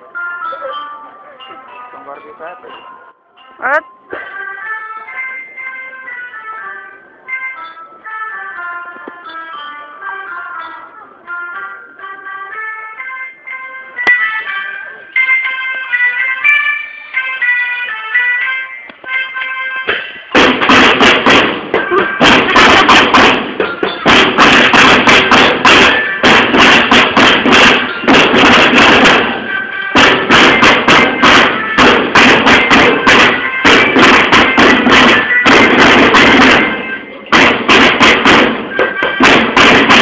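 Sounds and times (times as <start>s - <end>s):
faint melody instrument: 0.0s - 20.4s, 21.7s - 28.3s, 29.0s - 37.4s, 38.1s - 39.6s
snare and bass drums beating: 20.3s - 40.0s.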